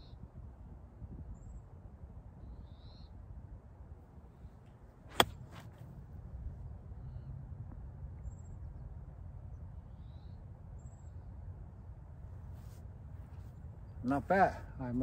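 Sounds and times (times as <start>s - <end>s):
low steady rumble: 0.0s - 15.0s
golf club striking ball: 5.1s - 5.9s
faint brushing sounds: 12.4s - 13.7s.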